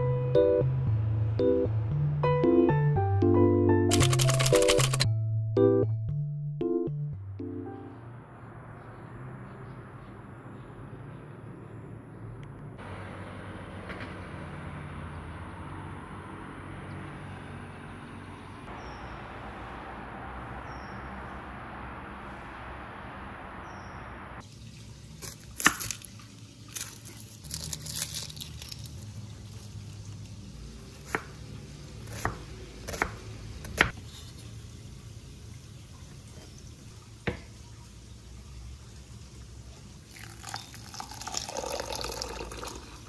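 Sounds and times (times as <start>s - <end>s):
knife chopping on wooden board: 32.1s - 34.0s.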